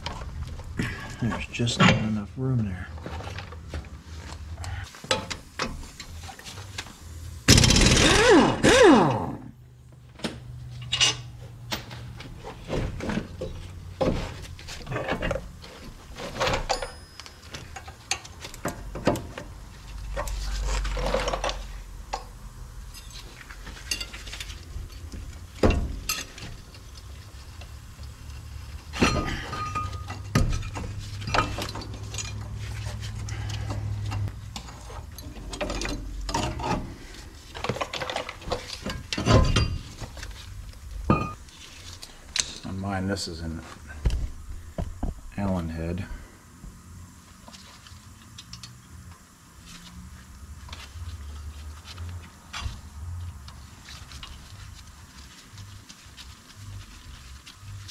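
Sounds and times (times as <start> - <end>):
metal clanks of tools and brake parts: 1.2 - 2.3, 4.6 - 6.4, 10.2 - 15.5, 16.2 - 22.3, 22.9 - 27.1, 28.9 - 37.0, 37.6 - 40.4, 41.0 - 41.4.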